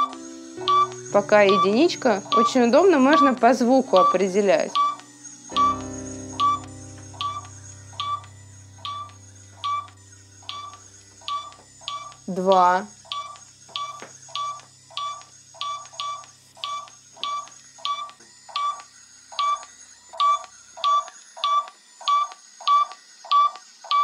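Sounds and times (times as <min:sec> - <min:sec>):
phone app short beeps: 0:00.0 - 0:02.6, 0:03.9 - 0:05.8.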